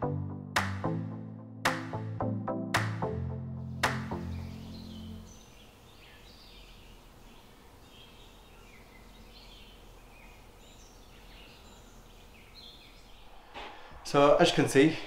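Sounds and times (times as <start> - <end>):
faint birdsong: 4.0 - 15.0
steady outdoor hiss: 4.0 - 15.0.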